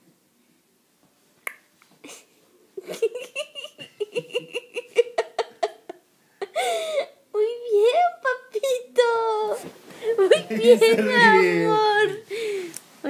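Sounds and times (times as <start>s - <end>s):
high-pitched rhythmic laughter: 2.8s - 6.0s.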